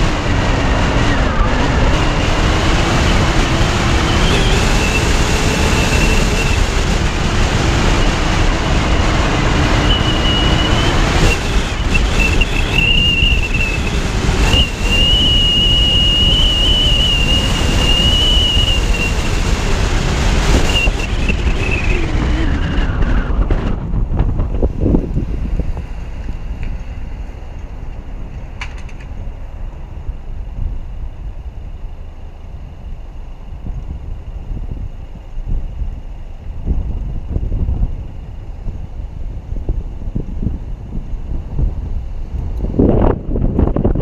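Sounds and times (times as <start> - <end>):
road and engine rumble: 0.0 - 44.0
wind buffeting microphone: 0.0 - 44.0
thin wavering high whistle: 9.8 - 19.2.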